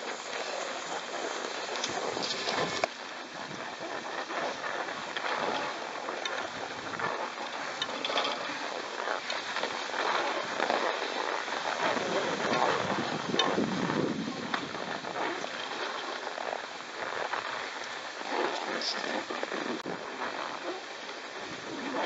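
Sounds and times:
skis scraping over snow: 0.0s - 22.0s.

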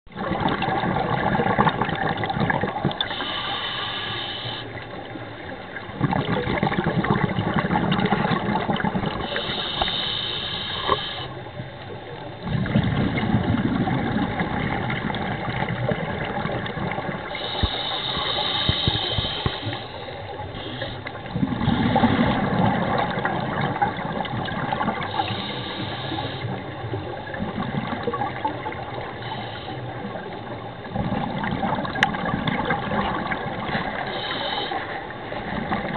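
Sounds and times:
exhaled bubbles rushing: 0.1s - 3.2s, 5.0s - 9.5s, 12.4s - 18.3s, 21.2s - 25.5s, 26.5s - 29.2s, 29.9s - 35.9s
regulator hissing inhale: 3.0s - 4.8s, 9.2s - 11.4s, 17.3s - 21.2s, 25.1s - 26.7s, 29.1s - 30.1s, 34.0s - 35.1s.

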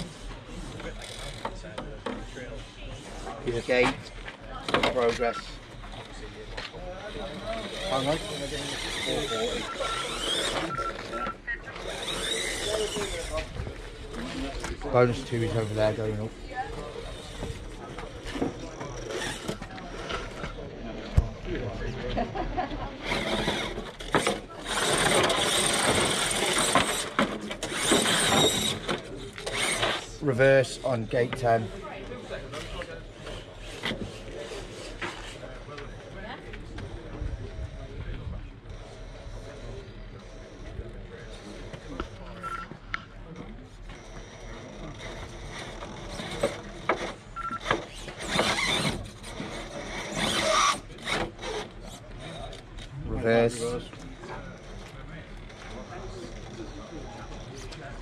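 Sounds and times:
toy car motor whining: 0.6s - 1.8s, 4.6s - 20.6s, 23.0s - 30.8s, 31.6s - 36.1s, 43.8s - 58.0s
clicks and scrapes: 23.0s - 30.1s.

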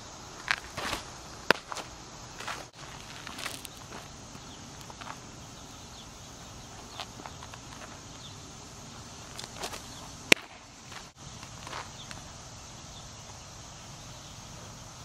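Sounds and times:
footsteps scuffing in dirt: 0.4s - 5.2s, 6.8s - 8.3s, 9.2s - 12.2s
baseball smacking into mitt: 0.5s - 1.9s, 9.6s - 10.6s.

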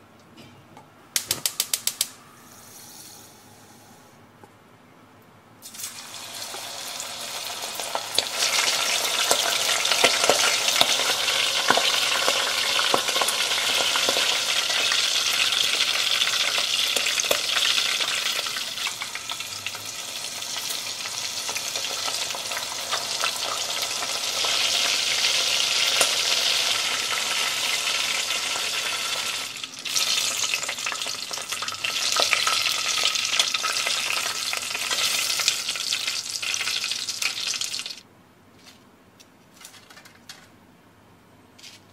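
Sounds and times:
hot oil sizzling and popping: 5.6s - 38.0s.

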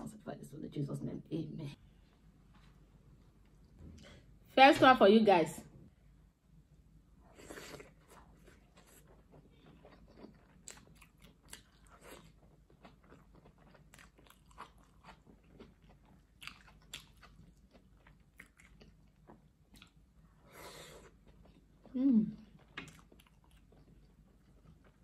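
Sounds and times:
person chewing crunchy food: 7.3s - 20.2s, 20.8s - 25.0s.

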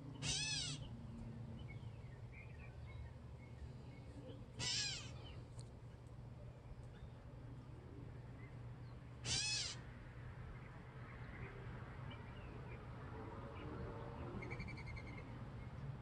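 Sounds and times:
catbird mewing call: 0.2s - 0.8s, 4.6s - 5.2s, 9.2s - 9.8s.

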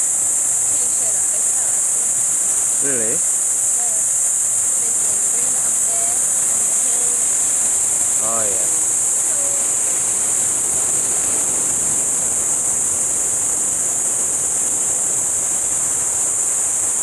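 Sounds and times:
insects shrilling: 0.0s - 17.0s
surf rushing: 6.4s - 17.0s.

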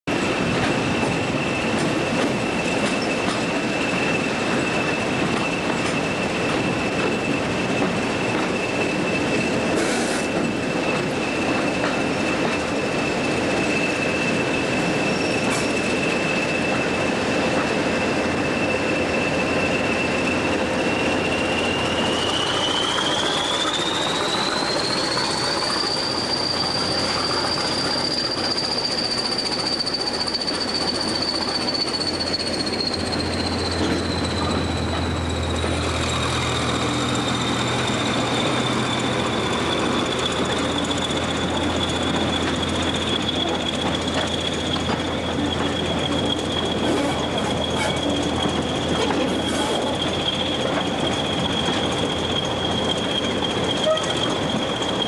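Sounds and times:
slow train running: 0.0s - 55.0s.

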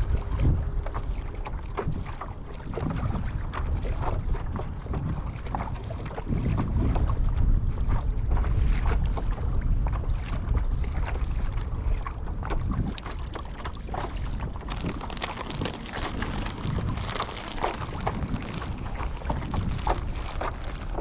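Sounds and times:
water lapping against hull: 0.0s - 21.0s
wind buffeting microphone: 0.0s - 21.0s.

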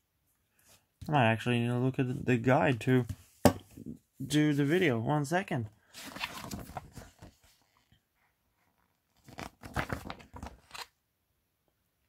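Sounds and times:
paper pages rustling: 5.8s - 7.9s, 8.7s - 10.9s.

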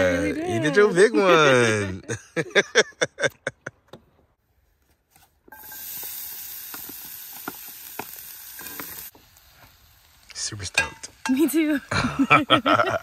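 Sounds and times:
vegetables sizzling in a skillet: 5.5s - 13.0s.

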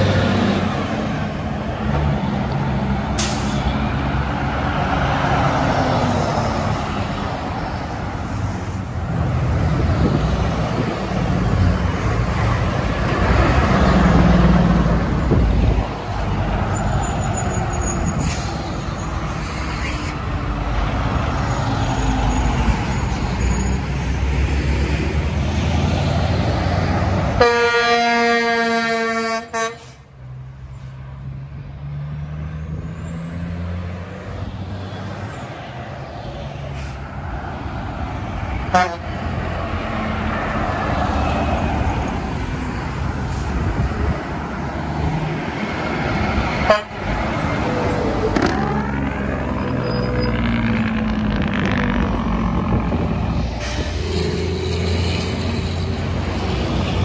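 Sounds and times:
heavy road traffic: 0.0s - 57.0s
truck engine passing: 0.0s - 57.0s
air horn: 27.4s - 30.0s, 38.7s - 39.1s, 46.7s - 47.0s.

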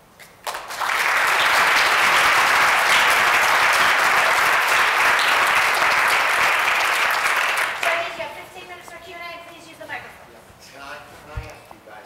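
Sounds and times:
audience applauding: 0.4s - 8.6s.

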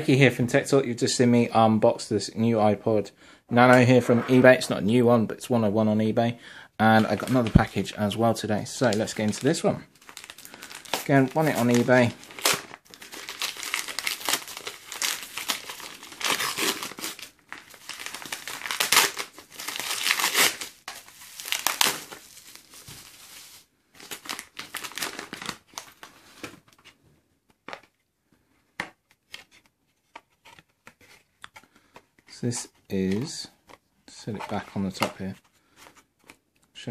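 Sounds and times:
paper tearing and crumpling: 8.9s - 26.1s.

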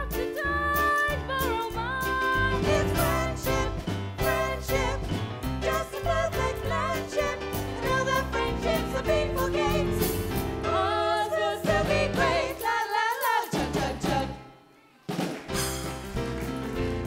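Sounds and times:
musical accompaniment: 0.0s - 17.0s
voices singing together: 2.5s - 14.6s.

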